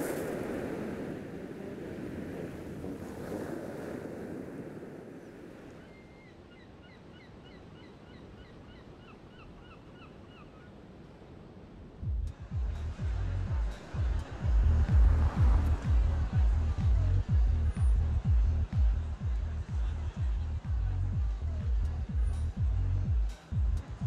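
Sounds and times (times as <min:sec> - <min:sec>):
surf washing on shingle: 0:00.0 - 0:05.8
bass beat: 0:12.0 - 0:24.0.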